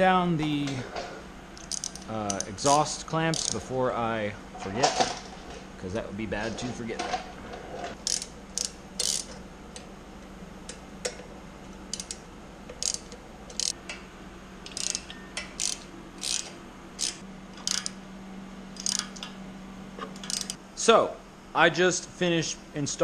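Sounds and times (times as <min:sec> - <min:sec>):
low background hum: 0:00.0 - 0:23.0
socket ratchet clicking: 0:01.6 - 0:03.6, 0:08.0 - 0:09.4, 0:11.9 - 0:13.8, 0:14.7 - 0:18.0, 0:18.8 - 0:19.3, 0:20.2 - 0:20.6.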